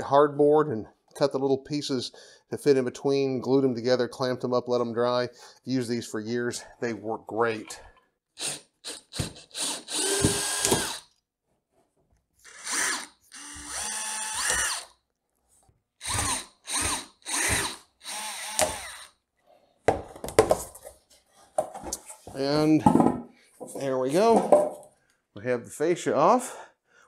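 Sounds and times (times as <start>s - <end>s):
power drill running in bursts: 8.4s - 11.0s, 12.5s - 14.9s, 16.0s - 19.1s
sharp knocks and clatter: 22.7s - 24.8s.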